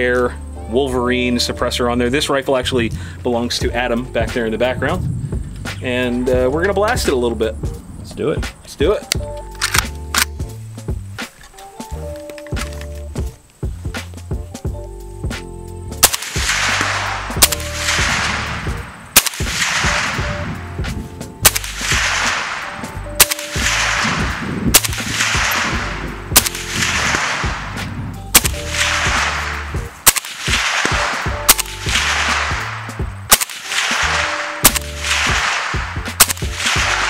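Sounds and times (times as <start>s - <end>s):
background music with bass line: 0.0s - 37.0s
suppressed rifle shots: 16.0s - 20.5s, 21.4s - 37.0s.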